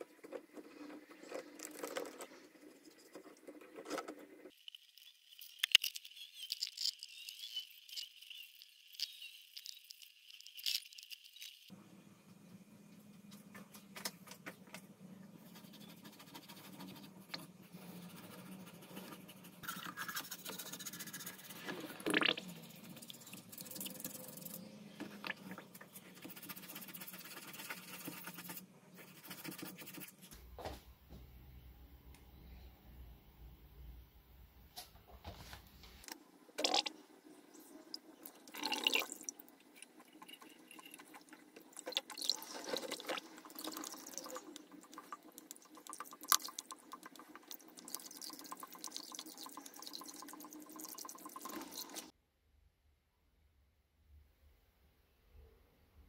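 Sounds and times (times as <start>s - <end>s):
toothbrush scrubbing metal underwater: 15.7s - 30.2s, 38.6s - 52.1s.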